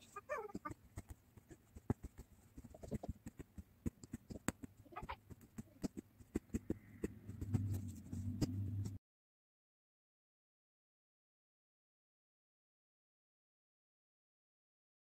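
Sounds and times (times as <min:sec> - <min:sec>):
punch needle tapping fabric: 0:00.4 - 0:09.0
low hum: 0:06.6 - 0:09.0.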